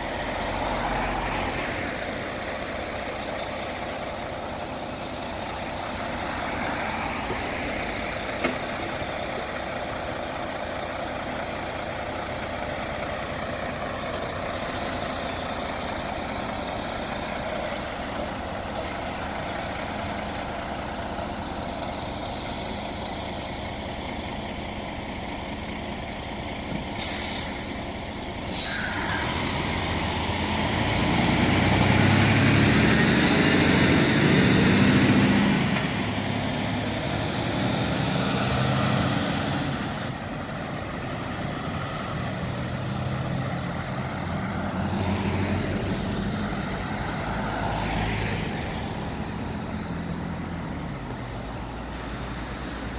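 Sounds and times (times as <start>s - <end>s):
truck diesel engine running: 0.0s - 52.9s
air brake hisses: 14.6s - 15.4s, 27.0s - 27.8s, 28.4s - 29.3s.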